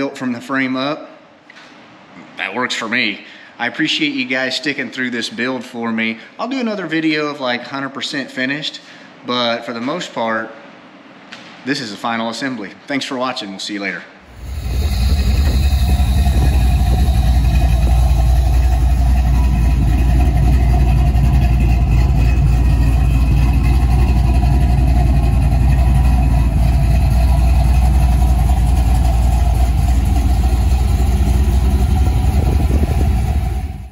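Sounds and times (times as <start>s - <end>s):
engine idling: 14.2s - 33.9s.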